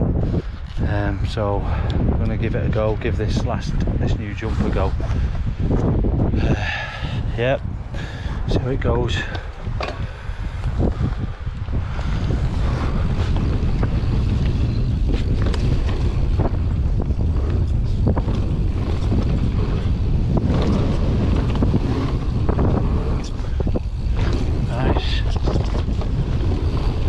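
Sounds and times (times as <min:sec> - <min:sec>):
bike tyres rolling on dirt: 0:00.0 - 0:27.0
wind buffeting microphone: 0:00.0 - 0:27.0
bike clacks and rattles: 0:07.9 - 0:27.0.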